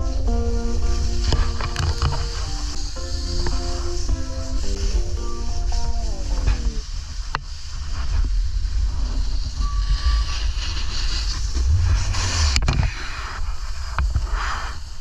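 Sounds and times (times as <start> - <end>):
snowboard edges scraping snow: 0.0 - 15.0
wind rumbling on microphone: 0.0 - 15.0.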